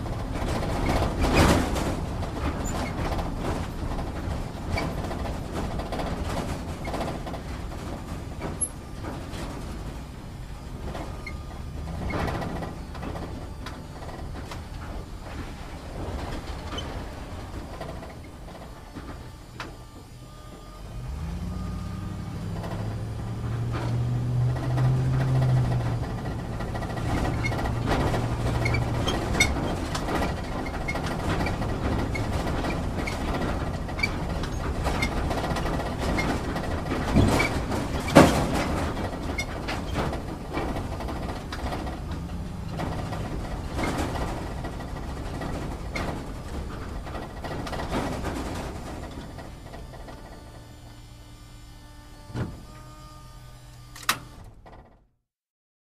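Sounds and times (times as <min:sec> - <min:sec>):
cabin rattling over rough ground: 0:00.0 - 0:51.1
vehicle engine running low: 0:00.0 - 0:54.7.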